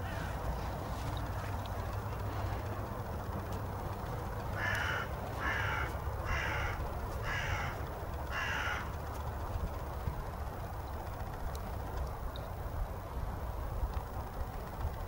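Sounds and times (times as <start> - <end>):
crow cawing: 0.0 - 0.4, 4.5 - 9.0.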